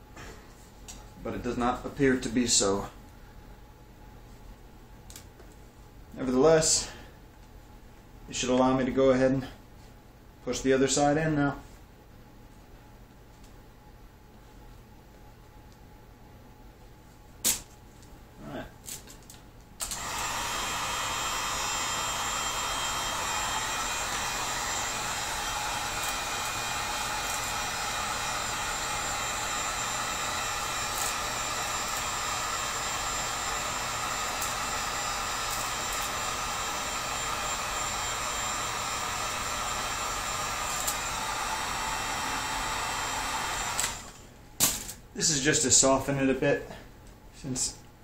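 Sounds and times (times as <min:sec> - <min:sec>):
heat gun fan blowing: 0:19.8 - 0:46.6.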